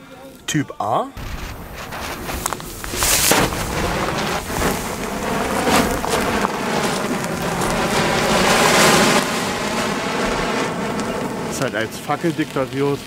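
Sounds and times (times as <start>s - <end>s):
sharp crackles: 1.2s - 13.0s
torch hissing sparks: 1.2s - 13.0s.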